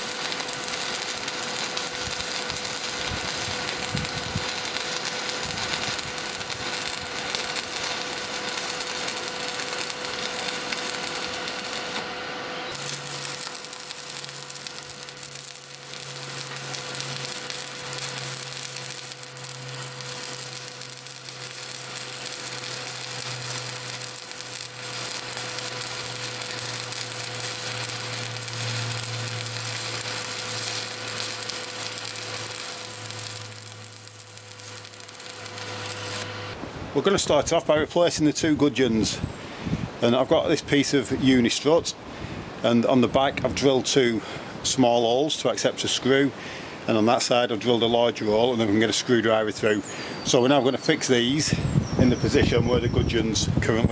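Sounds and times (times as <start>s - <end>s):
welding arc crackling and sizzling: 0.0s - 39.2s
low hum: 0.1s - 37.0s.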